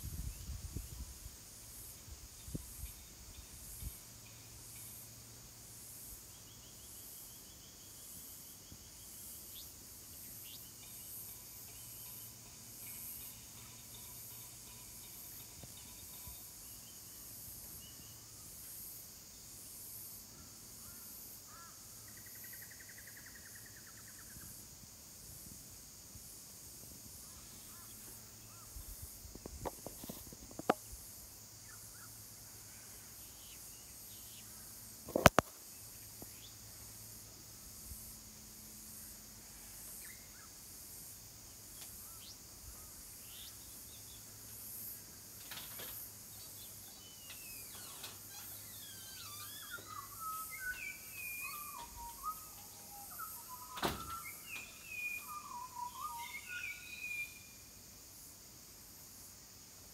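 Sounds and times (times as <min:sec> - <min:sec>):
steady high hiss: 0:00.0 - 0:59.9
birds chirping: 0:45.5 - 0:57.6.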